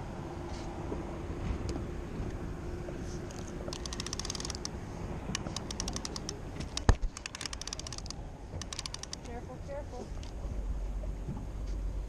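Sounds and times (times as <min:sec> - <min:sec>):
fishing reel ratcheting clicks: 0:03.7 - 0:04.7, 0:05.4 - 0:09.3.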